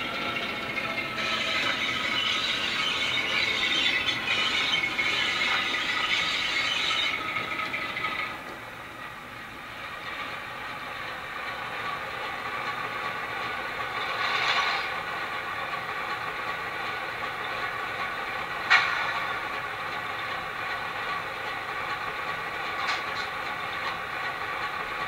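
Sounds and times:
high squeal: 0.0s - 8.3s
model diesel engine sound: 0.0s - 25.0s.

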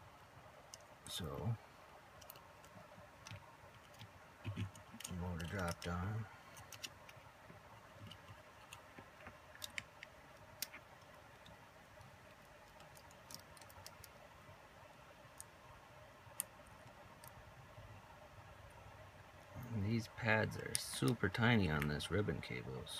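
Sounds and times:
small plastic parts clicking: 2.2s - 14.2s, 16.3s - 17.4s.

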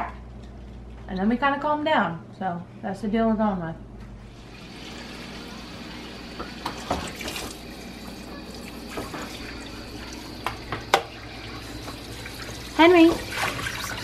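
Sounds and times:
water running from sprayer hose: 4.4s - 14.0s.

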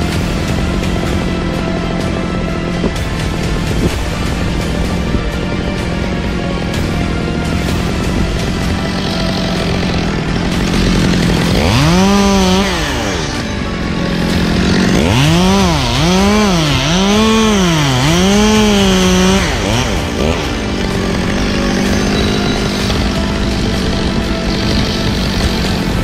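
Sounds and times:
chainsaw revving: 0.0s - 26.0s.

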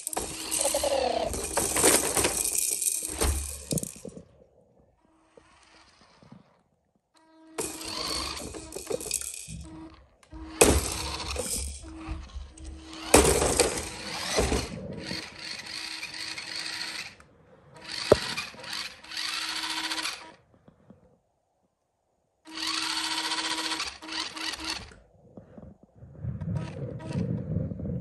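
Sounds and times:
electric motor whining: 0.0s - 1.7s, 5.0s - 6.6s, 7.2s - 17.2s, 17.8s - 20.4s, 22.5s - 25.0s
toy truck knocking into plastic: 10.4s - 15.3s, 18.0s - 18.5s.

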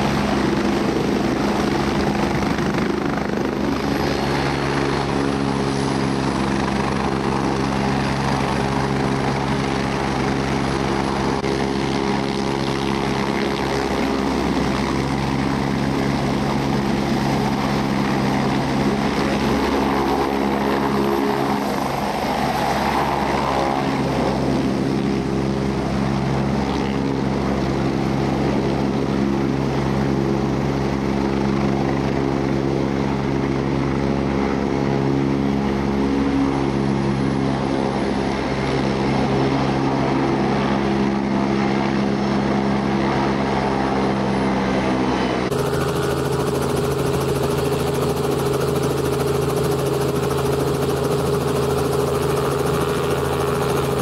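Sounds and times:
helicopter running: 0.0s - 54.0s
steady engine sound: 42.4s - 54.0s.

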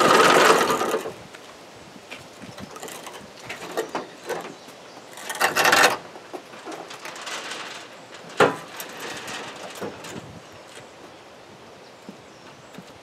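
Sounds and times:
loud scraping rattle: 0.0s - 1.2s, 5.1s - 10.3s.

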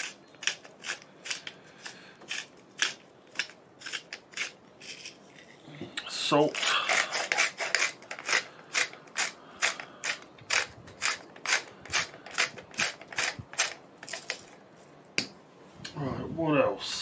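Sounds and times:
salt grinder grinding: 0.0s - 5.6s, 6.5s - 14.5s.

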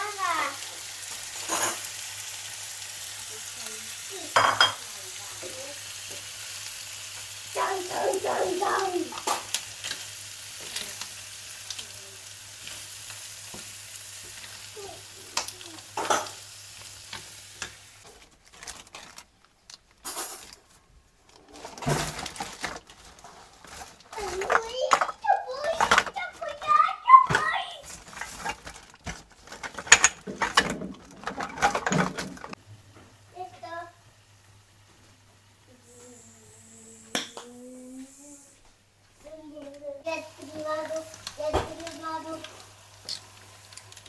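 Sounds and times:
food sizzling in frying pan: 0.0s - 19.0s, 20.0s - 20.6s, 21.4s - 38.7s, 39.5s - 44.0s
dishes clinking: 4.3s - 4.8s, 16.0s - 16.4s.

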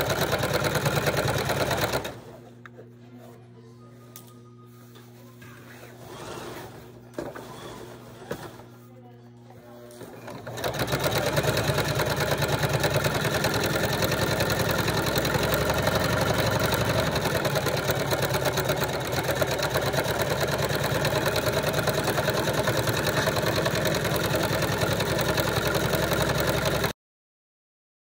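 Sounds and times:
electric sewing machine running: 0.0s - 2.4s, 6.0s - 8.5s, 10.0s - 27.0s.

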